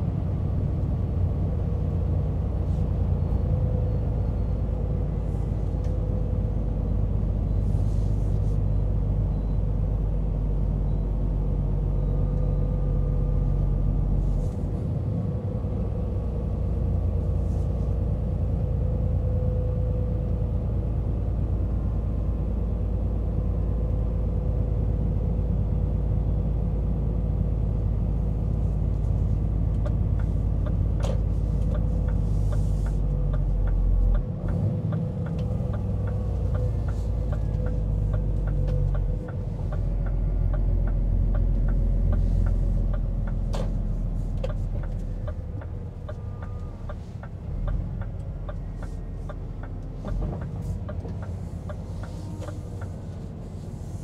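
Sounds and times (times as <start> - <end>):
diesel truck engine droning: 0.0 - 54.0
light evenly spaced ticks: 44.2 - 53.2.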